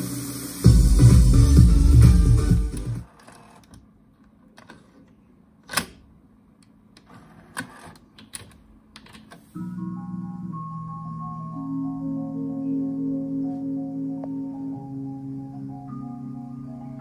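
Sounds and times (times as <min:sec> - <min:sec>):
music: 0:00.0 - 0:03.1, 0:09.6 - 0:17.0.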